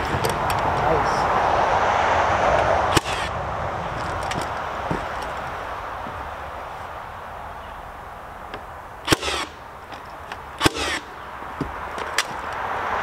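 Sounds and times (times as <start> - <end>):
nail gun firing: 2.9 - 3.3, 9.1 - 9.6, 10.6 - 11.1.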